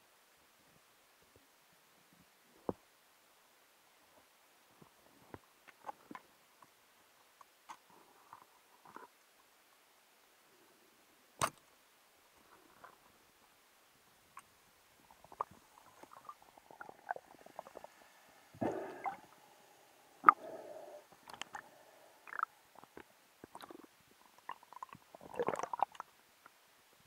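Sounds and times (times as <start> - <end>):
gurgling rush of water: 15.0 - 26.1.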